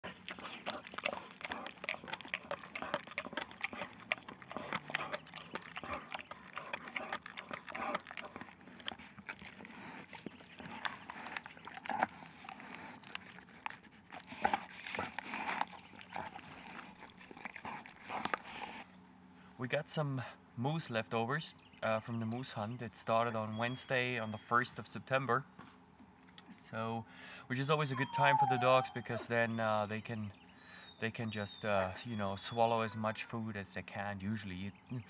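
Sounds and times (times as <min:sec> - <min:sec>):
dog chewing meat and bone: 0:00.0 - 0:18.9.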